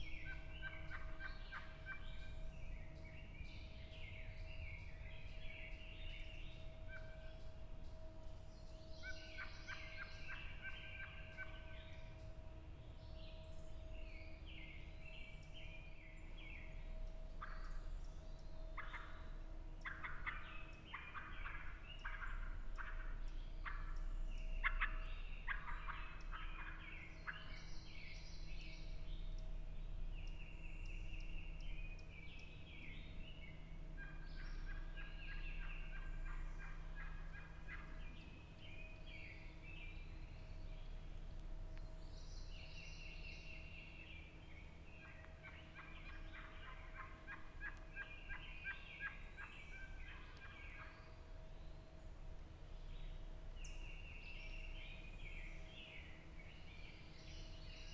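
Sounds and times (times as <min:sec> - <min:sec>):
songbirds singing: 0:00.0 - 0:57.9
turkey gobbling: 0:00.3 - 0:02.2, 0:18.8 - 0:19.2, 0:19.8 - 0:24.0, 0:24.6 - 0:27.5, 0:34.0 - 0:38.0, 0:45.0 - 0:50.9.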